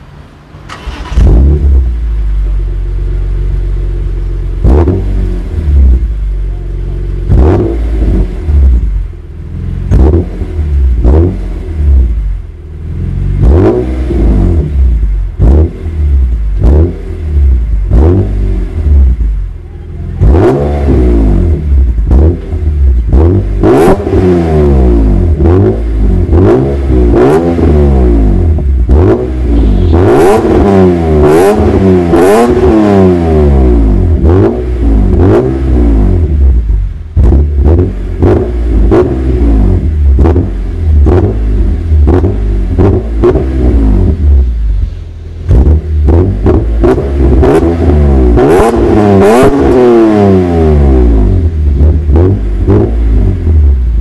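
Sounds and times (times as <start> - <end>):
car engine revving: 0.0 - 54.0.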